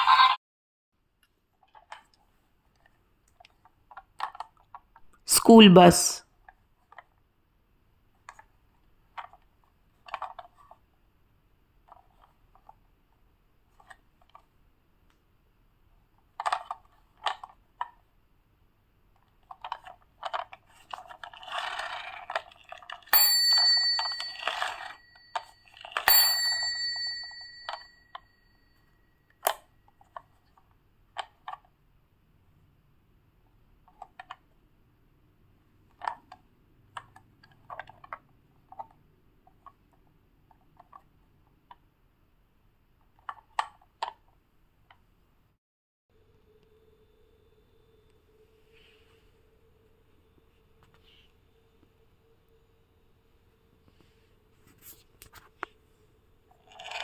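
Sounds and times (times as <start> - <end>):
plastic toy clicks and rattles: 3.4 - 5.0, 9.1 - 10.8, 16.3 - 18.0, 19.2 - 26.1, 35.9 - 39.0, 56.6 - 57.0
small bell ringing: 23.1 - 29.1.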